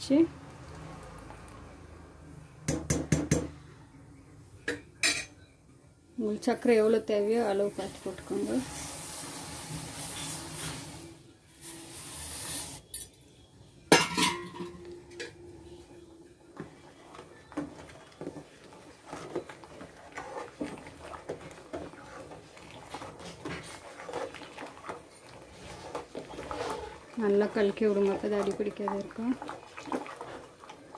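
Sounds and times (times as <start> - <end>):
boiling rice pudding: 0.0 - 3.5, 6.3 - 13.0, 14.0 - 30.9
sugar pouring hiss: 7.9 - 13.0
spoon scraping a steel pan: 19.1 - 27.2.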